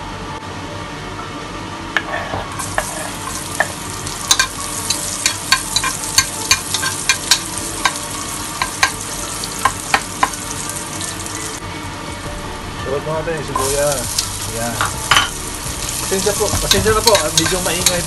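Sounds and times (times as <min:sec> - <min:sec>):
metal spoon scraping pot: 0:02.0 - 0:03.4
garlic sizzling in hot oil: 0:02.5 - 0:11.6, 0:13.4 - 0:18.0.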